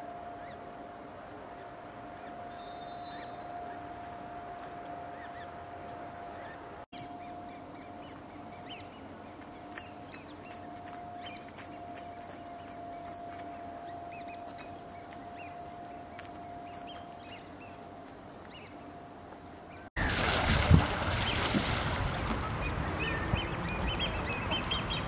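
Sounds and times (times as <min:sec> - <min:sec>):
high bird chirps: 0:02.2 - 0:04.6, 0:22.4 - 0:25.0.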